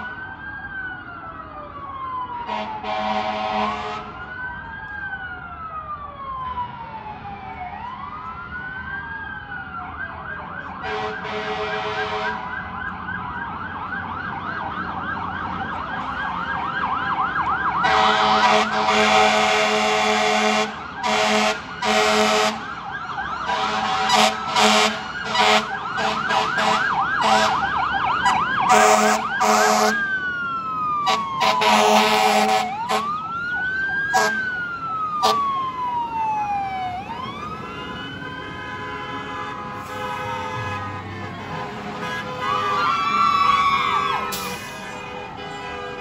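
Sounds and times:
fire engine siren: 0:00.0 - 0:46.0
air horn blasts: 0:02.5 - 0:04.2, 0:10.8 - 0:12.5, 0:17.8 - 0:22.6, 0:23.5 - 0:27.6, 0:28.7 - 0:30.0, 0:31.1 - 0:33.1, 0:34.1 - 0:34.4, 0:35.2 - 0:35.4, 0:38.4 - 0:43.1, 0:43.9 - 0:46.0.

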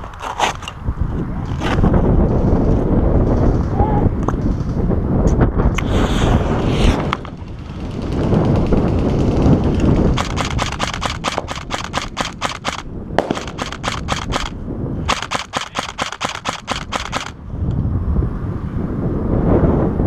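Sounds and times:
airsoft rifle rapid shots: 0:07.4 - 0:17.4.

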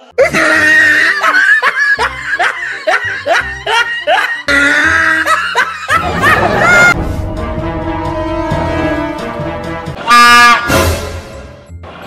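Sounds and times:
music: 0:00.0 - 0:12.0
person laughing: 0:00.2 - 0:07.0.

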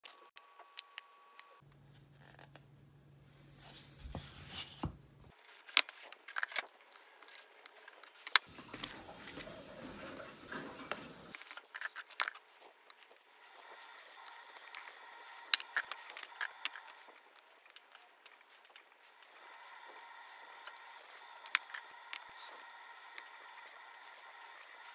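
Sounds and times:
rice paddle scraping rice: 0:08.5 - 0:11.4.

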